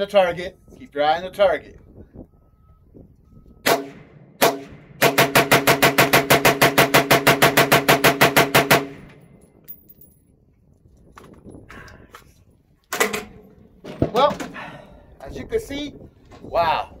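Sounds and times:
rifle shots: 0:03.6 - 0:09.2
rapid rifle fire: 0:03.7 - 0:09.1.

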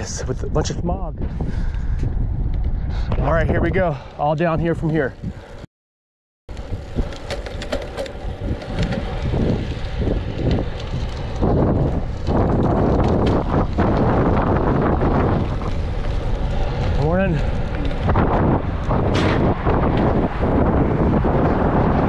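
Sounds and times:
wind rushing over microphone: 0:00.0 - 0:05.7, 0:06.5 - 0:22.0
light bike clicks: 0:06.5 - 0:19.0.

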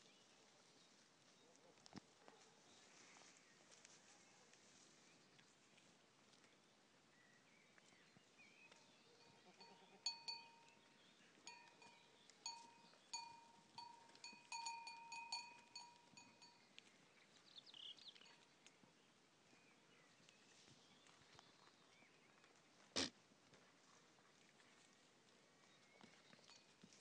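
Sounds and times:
small metal bell clinking: 0:09.2 - 0:10.8, 0:11.5 - 0:16.6.

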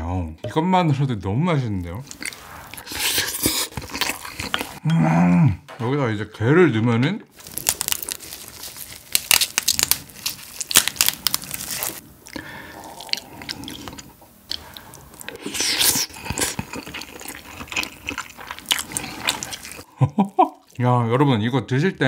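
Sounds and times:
close chewing: 0:02.0 - 0:04.8, 0:07.4 - 0:20.8
crab shell cracking: 0:07.4 - 0:15.4.

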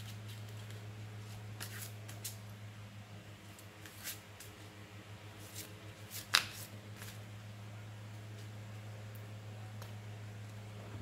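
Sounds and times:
cards shuffling: 0:00.0 - 0:02.4, 0:03.5 - 0:04.6, 0:05.4 - 0:07.2
card snap: 0:06.2 - 0:07.1.

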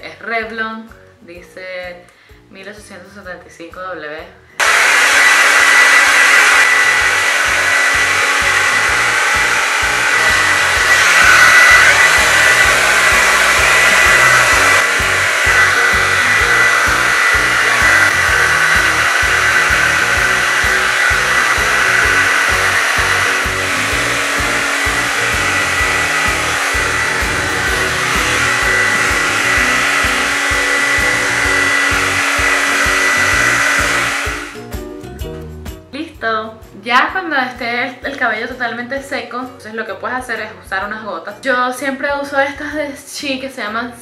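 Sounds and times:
hair dryer running: 0:04.6 - 0:34.8.

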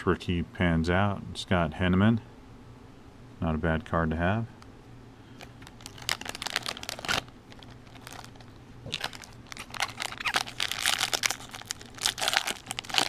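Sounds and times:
foil wrapper crinkling: 0:05.4 - 0:13.0.

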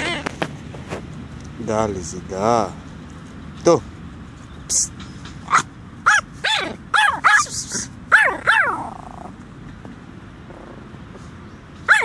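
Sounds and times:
small dog yapping barks: 0:05.5 - 0:09.3.

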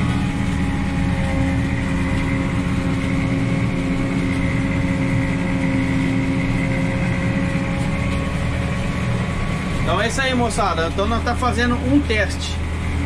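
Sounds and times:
constant machine whine: 0:00.0 - 0:13.0
tractor engine drone: 0:00.0 - 0:13.0.

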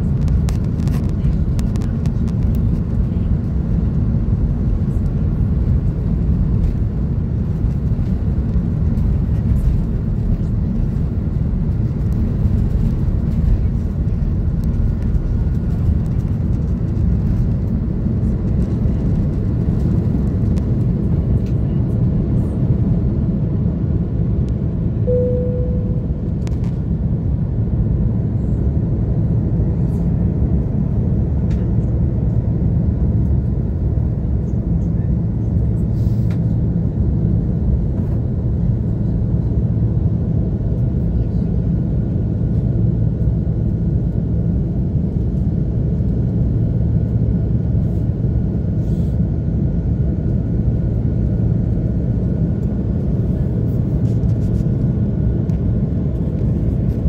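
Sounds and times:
airplane cabin engine rumble: 0:00.0 - 0:57.0
single cabin tone: 0:25.0 - 0:26.4.

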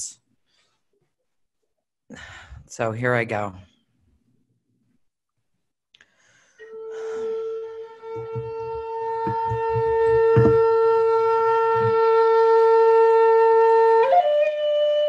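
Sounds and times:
flute playing long note: 0:06.6 - 0:15.0
soft low knocks: 0:08.1 - 0:12.2.

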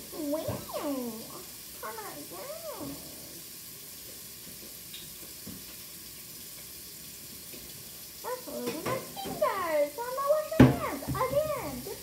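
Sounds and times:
person speaking: 0:00.0 - 0:03.4, 0:08.2 - 0:12.0
faint room tone hiss: 0:00.0 - 0:12.0.

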